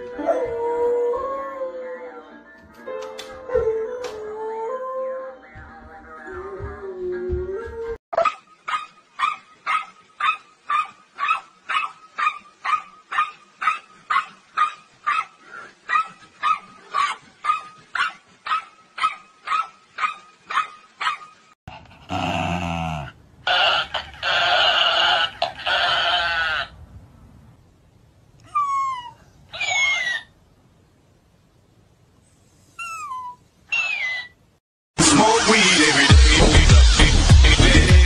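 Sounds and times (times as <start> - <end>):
dog barking: 8.2 - 15.3, 15.9 - 21.3.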